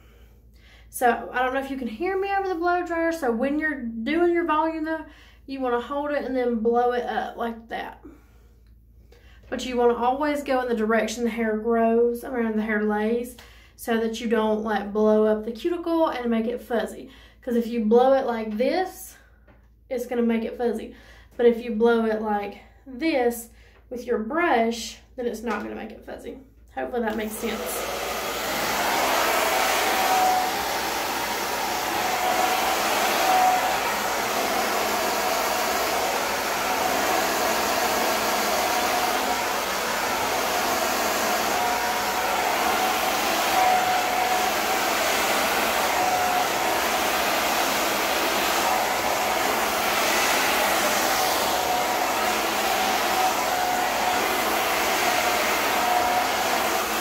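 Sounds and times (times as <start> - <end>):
hair dryer blowing: 27.0 - 57.0.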